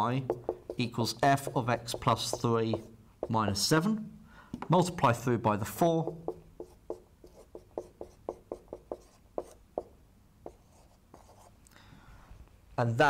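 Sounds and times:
marker pen writing on whiteboard: 0.2s - 3.7s, 6.0s - 11.5s.

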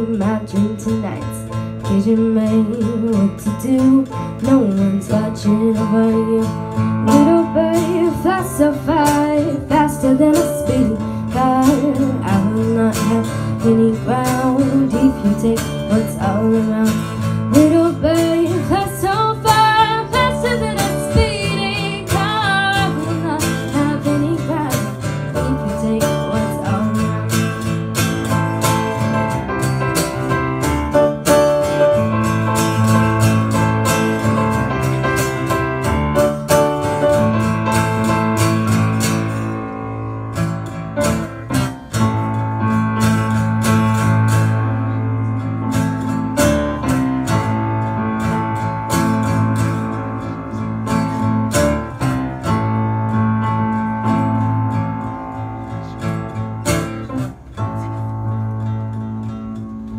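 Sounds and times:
woman singing: 0.0s - 27.6s
acoustic guitar: 0.0s - 59.9s.

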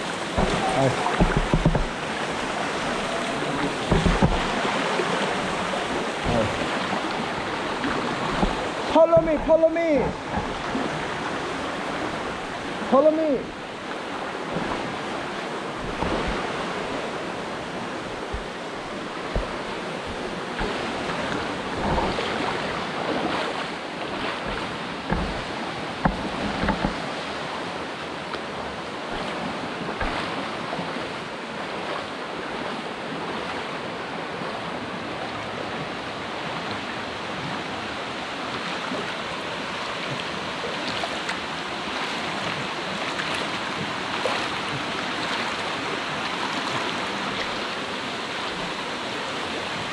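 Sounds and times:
flowing water rushing: 0.0s - 49.9s
dull thumps: 0.4s - 2.0s, 3.6s - 4.6s, 8.3s - 10.6s, 19.3s - 21.2s, 24.4s - 27.0s.

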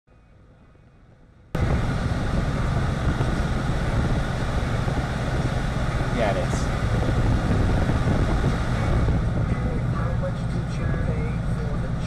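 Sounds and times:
car engine and cabin noise: 0.1s - 12.0s.

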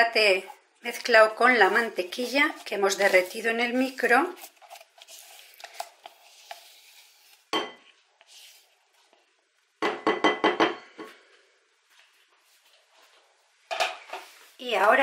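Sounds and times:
spatula scraping bowl: 1.4s - 7.5s.

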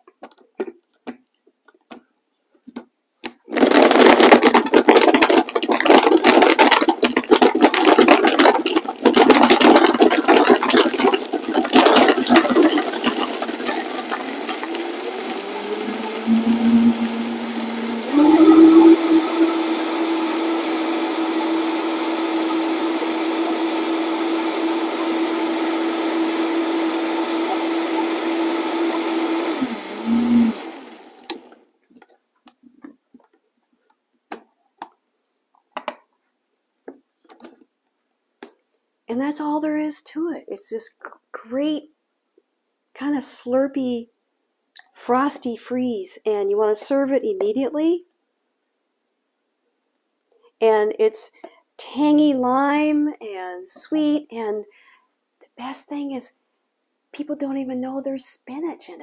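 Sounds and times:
blender crushing ice: 3.3s - 31.6s
blender motor whine: 7.3s - 31.6s.

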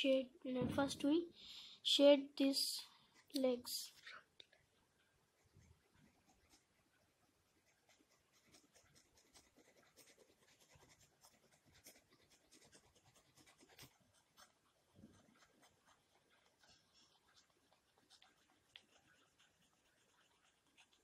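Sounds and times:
pencil scratching on paper: 5.3s - 21.0s.

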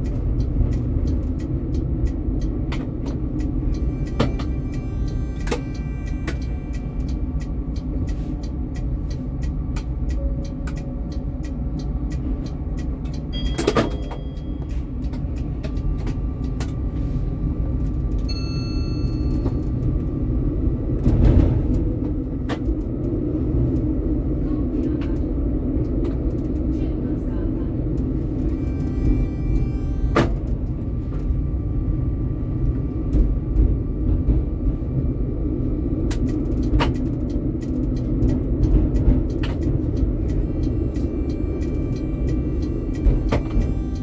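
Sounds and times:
tram wheels rumbling on rails: 0.0s - 44.0s
short ringing tone: 13.3s - 14.7s, 18.3s - 19.7s.

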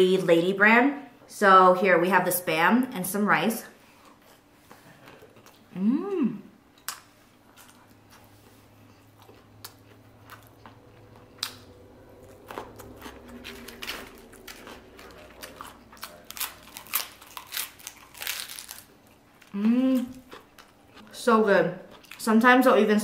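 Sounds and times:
wet chewing: 6.7s - 21.2s, 21.8s - 22.4s
crisp crunches: 12.2s - 19.6s.

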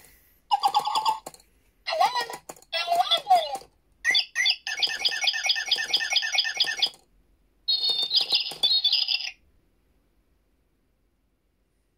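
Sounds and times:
toy bird chirping electronically: 0.5s - 1.3s, 2.0s - 7.0s, 7.7s - 9.4s.

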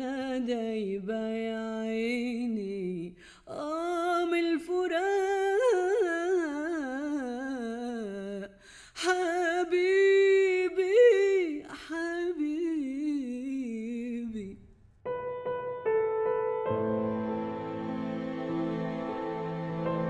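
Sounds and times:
woman singing unaccompanied: 0.0s - 14.6s
soft keyboard chords: 15.1s - 20.0s.

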